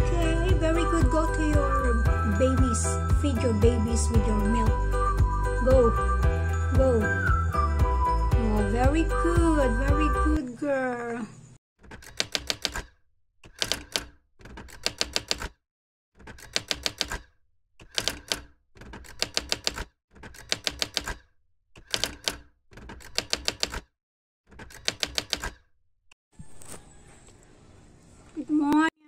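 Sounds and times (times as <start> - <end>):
typewriter key clacks: 11.8 - 12.9, 13.5 - 15.6, 16.2 - 17.2, 17.8 - 21.2, 21.8 - 23.9, 24.5 - 25.6.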